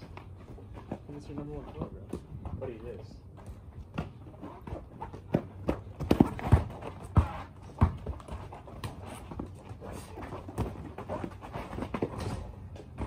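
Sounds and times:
basketball bouncing: 3.4s - 9.0s.

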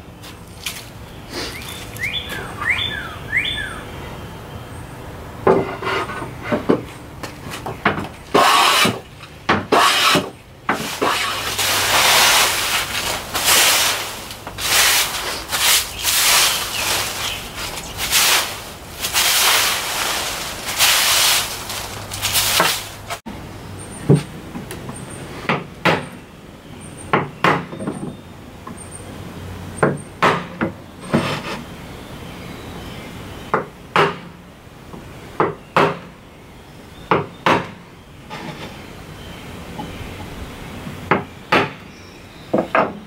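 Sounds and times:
knife scraping wooden board: 5.5s - 6.8s, 8.3s - 9.0s, 9.7s - 18.4s, 38.3s - 38.8s
push broom sweeping concrete: 8.3s - 9.1s, 9.7s - 23.2s.

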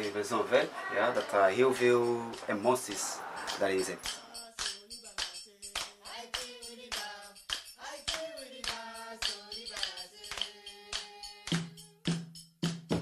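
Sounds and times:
percussive music with melody: 3.4s - 13.0s.

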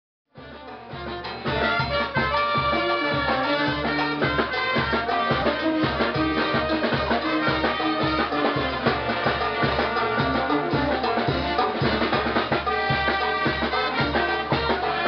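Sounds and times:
bass drum: 0.4s - 15.0s
snare drum: 0.4s - 15.0s
trumpets: 0.4s - 15.0s
cymbals: 0.9s - 15.0s.

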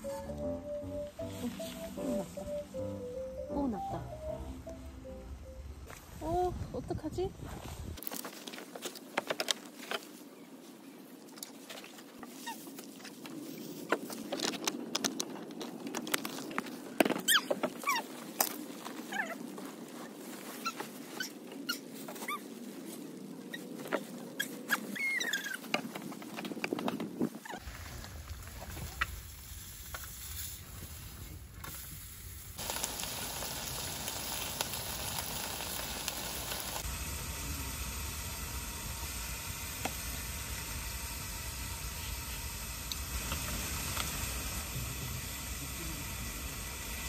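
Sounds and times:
rain pattering: 32.6s - 36.9s
meat sizzling on a stove: 32.6s - 47.0s.

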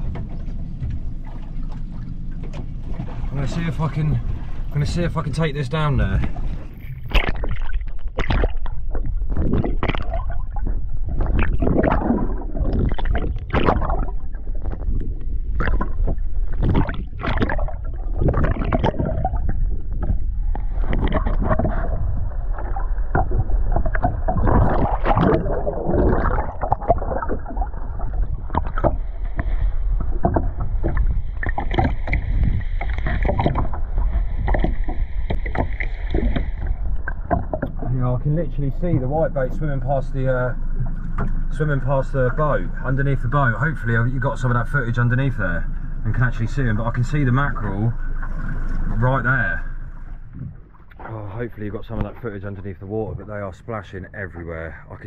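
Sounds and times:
low rumble: 0.0s - 55.0s
muffled underwater sloshing: 0.0s - 55.0s
knocks and bumps: 28.5s - 37.9s.

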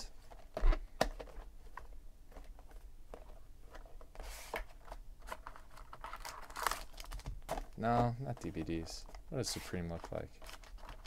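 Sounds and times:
cardboard box and foil rustling: 5.2s - 11.0s.

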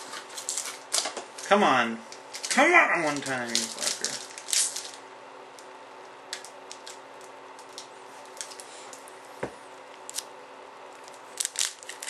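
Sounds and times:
foil wrapper crinkling: 0.1s - 1.5s, 2.3s - 5.0s, 11.0s - 12.0s.

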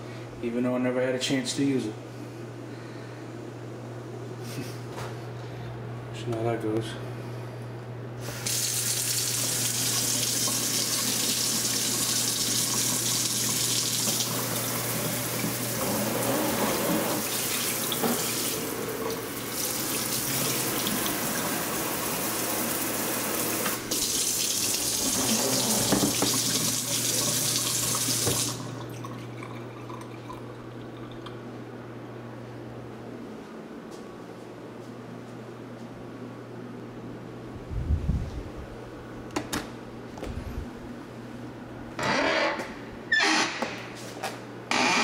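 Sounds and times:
faucet water hitting sink: 23.6s - 28.7s.

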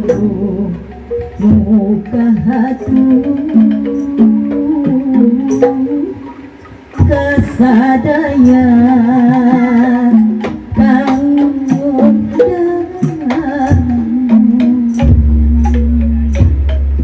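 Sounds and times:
woman singing: 0.0s - 6.3s, 7.0s - 16.5s
hand drum: 0.0s - 17.0s.

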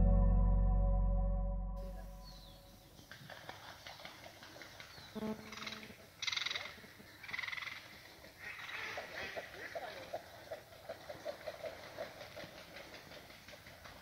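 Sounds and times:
raspy bird calls: 4.8s - 9.4s.

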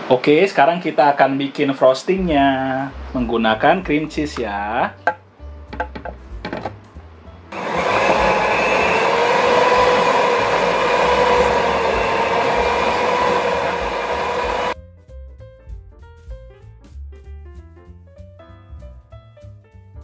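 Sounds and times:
stand mixer motor whine: 7.6s - 14.8s.

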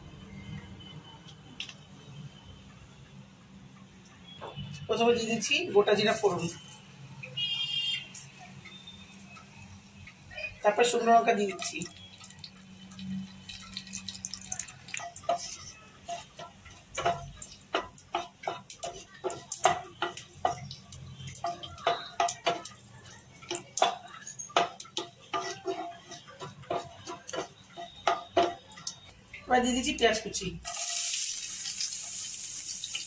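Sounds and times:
seeds crackling in hot oil: 5.4s - 33.0s
spatula scraping a pan: 15.1s - 20.6s, 21.3s - 28.9s.

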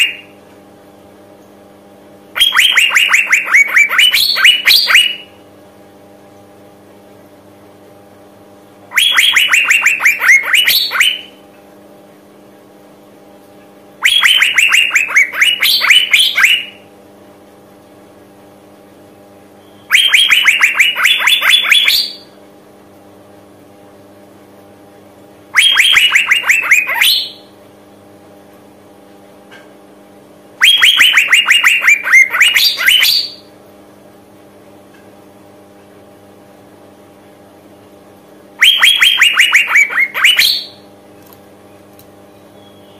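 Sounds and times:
bird calling in rapid runs: 0.0s - 0.3s, 2.4s - 5.3s, 8.9s - 11.4s, 14.0s - 16.8s, 19.9s - 22.3s, 25.6s - 27.5s, 30.6s - 33.5s, 38.6s - 40.8s
faint steady hum: 0.0s - 42.9s.

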